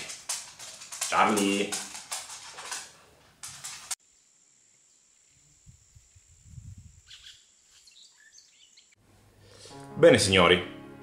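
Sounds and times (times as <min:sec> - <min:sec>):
high insect-like tone: 0:03.9 - 0:08.9
chirps: 0:07.0 - 0:09.0.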